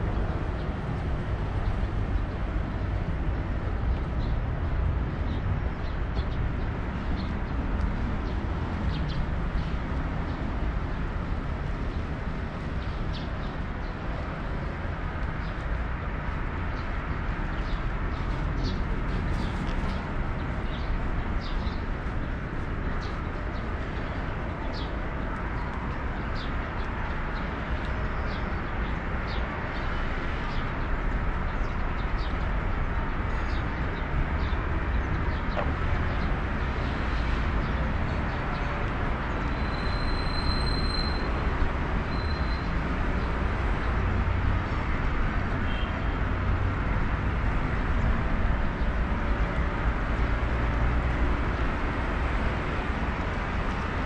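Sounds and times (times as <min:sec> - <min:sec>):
city traffic rumble: 0:00.0 - 0:54.0.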